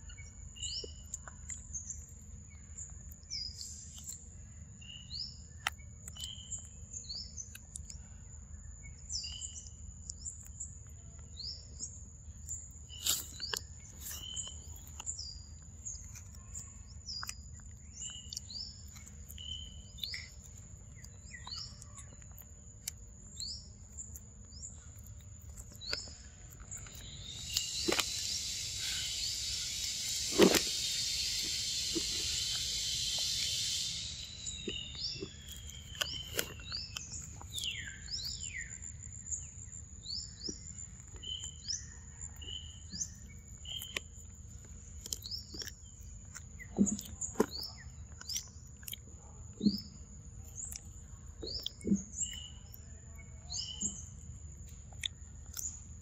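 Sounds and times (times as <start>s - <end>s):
birds chirping: 0.0s - 44.1s
high insect whine: 27.0s - 36.9s
loud insect buzz: 27.3s - 35.2s.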